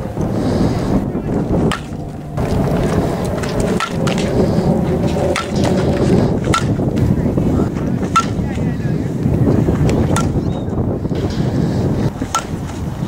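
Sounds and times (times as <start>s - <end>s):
wind buffeting microphone: 0.0s - 13.0s
bat hitting balls: 1.6s - 2.4s, 3.8s - 4.3s, 5.2s - 6.8s, 8.1s - 8.5s, 10.0s - 10.5s, 12.2s - 12.8s.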